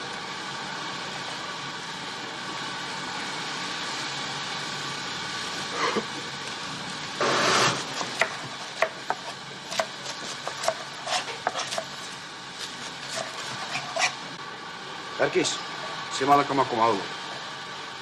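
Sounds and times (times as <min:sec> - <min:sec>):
knife chopping on cutting board: 0:08.0 - 0:11.9, 0:13.1 - 0:14.1
rustle of leafy greens: 0:10.2 - 0:14.3.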